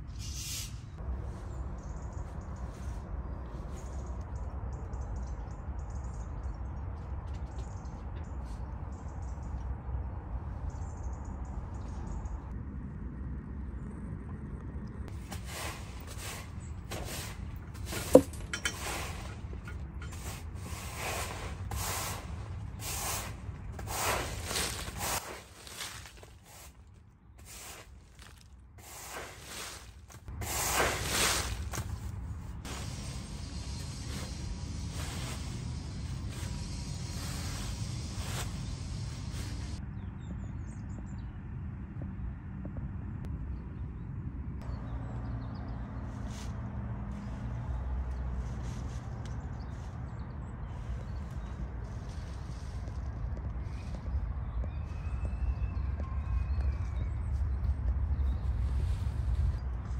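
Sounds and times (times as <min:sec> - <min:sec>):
steady low rumble: 0:08.9 - 0:59.9
push broom sweeping leaves: 0:15.1 - 0:26.8, 0:27.4 - 0:39.8
faint bird chirps: 0:53.6 - 0:58.5.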